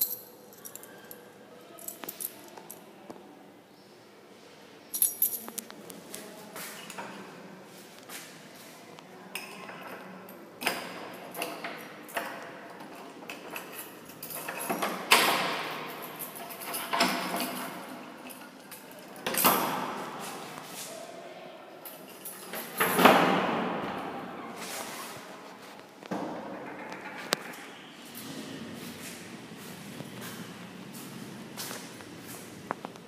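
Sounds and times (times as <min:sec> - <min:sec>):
metal padlock clicking and rattling: 0:10.6 - 0:19.6
keys jangling: 0:11.3 - 0:19.7.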